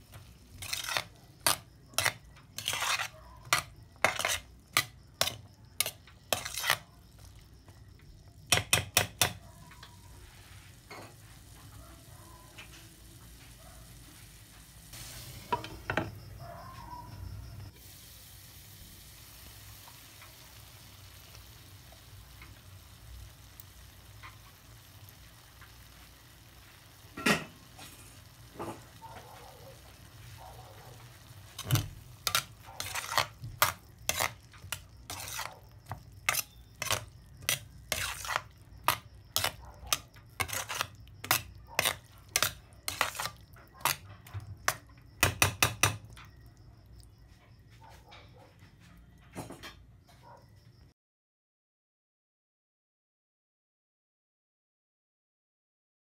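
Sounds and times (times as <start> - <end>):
stew simmering in a pot: 0.0 - 50.0
utensil scraping and clacking a pan: 0.1 - 7.2, 8.5 - 10.0, 31.2 - 46.4.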